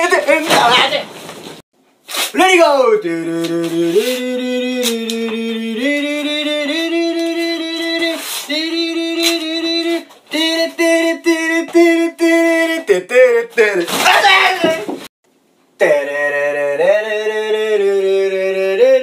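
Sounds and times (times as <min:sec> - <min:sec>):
person singing slow tune: 0:02.8 - 0:13.9, 0:15.8 - 0:19.0.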